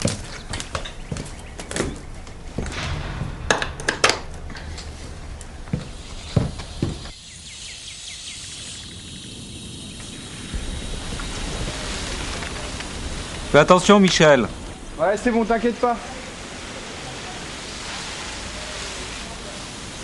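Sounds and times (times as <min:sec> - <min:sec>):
footsteps on tiled floor: 0:00.0 - 0:03.3, 0:04.8 - 0:07.2
steady background noise: 0:00.0 - 0:20.0.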